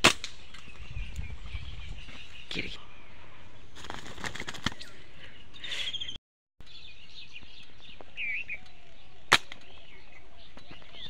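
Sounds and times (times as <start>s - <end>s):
small birds chirping: 0.3s - 11.0s
wings flapping: 3.8s - 5.0s.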